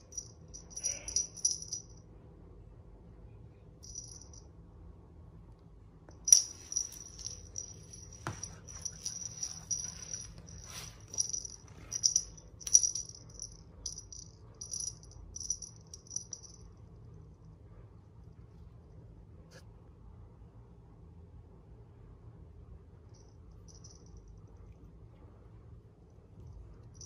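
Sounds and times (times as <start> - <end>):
small jingle bell jingling: 0.0 - 2.0, 3.8 - 4.4, 6.3 - 16.7, 23.2 - 24.4.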